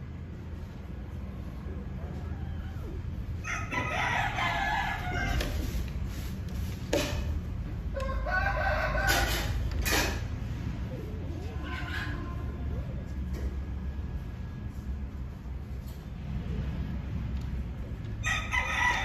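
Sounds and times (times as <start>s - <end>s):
rooster crowing: 2.2s - 5.7s, 7.9s - 9.7s, 18.2s - 19.0s.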